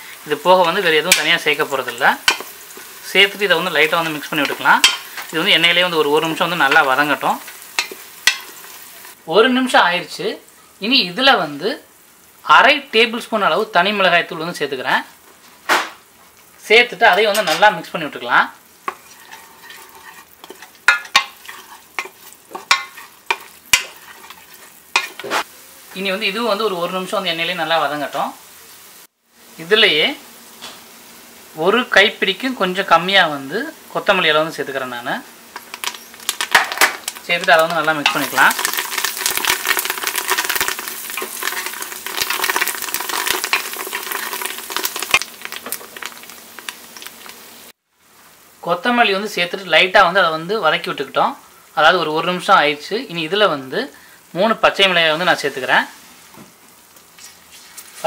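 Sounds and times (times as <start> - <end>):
utensil scraping a pot: 0.0 - 5.3, 6.1 - 9.2, 18.8 - 25.5, 38.0 - 45.2
oil sizzling in a pot: 0.0 - 58.0.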